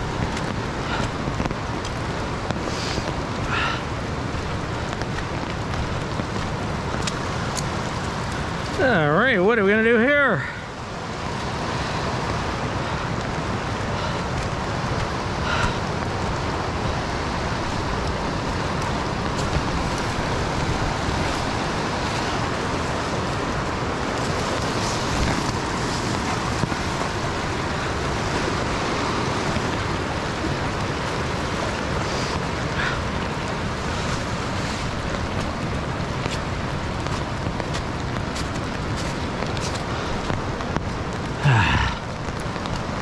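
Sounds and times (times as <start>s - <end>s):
rushing river water: 0.0s - 43.0s.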